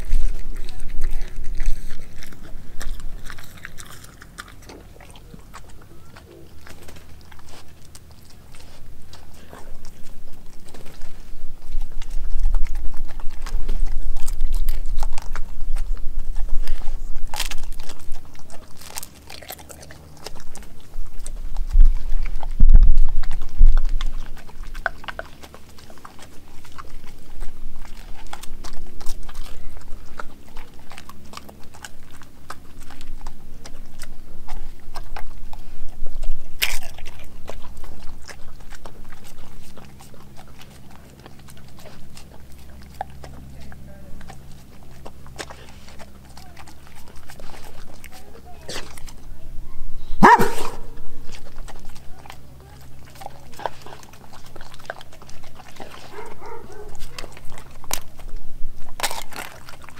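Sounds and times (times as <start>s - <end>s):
wet clicks of teeth and tongue: 0.0s - 49.4s, 50.0s - 59.9s
dog chewing and crunching food: 0.0s - 59.9s.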